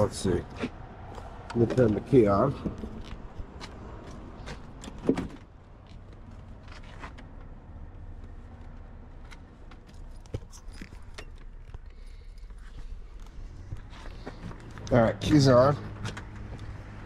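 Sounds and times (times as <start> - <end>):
truck door opening: 4.4 - 5.5.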